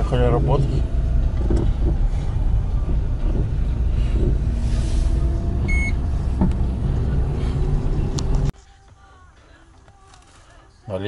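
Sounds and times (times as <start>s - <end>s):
car engine running: 0.0s - 8.5s
short electronic beep: 5.7s - 6.0s.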